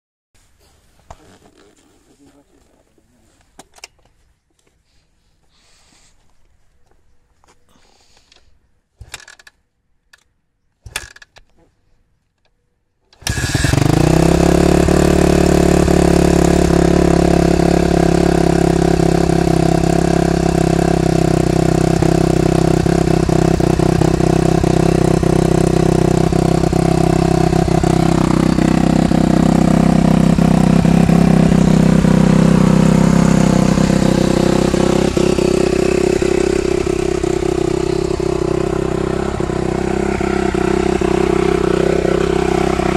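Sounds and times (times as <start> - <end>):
motorcycle kick-start: 13.2 - 17.6
motorcycle engine idling: 13.3 - 42.9.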